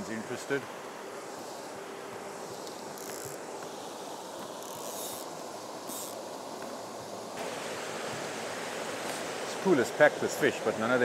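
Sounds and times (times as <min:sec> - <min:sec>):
river water rushing over rocks: 0:05.6 - 0:11.0.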